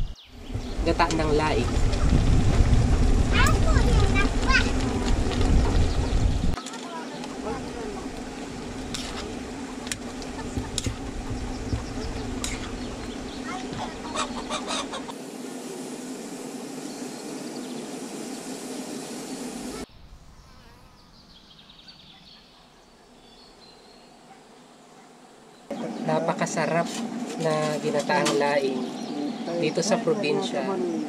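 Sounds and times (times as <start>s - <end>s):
faint birdsong: 0.0s - 2.4s, 9.1s - 15.1s, 16.2s - 31.0s
chickens clucking: 7.0s - 15.2s.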